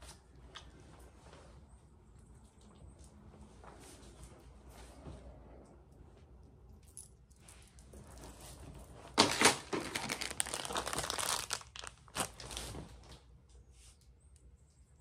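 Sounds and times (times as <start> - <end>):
packaging crinkling: 9.1 - 13.1.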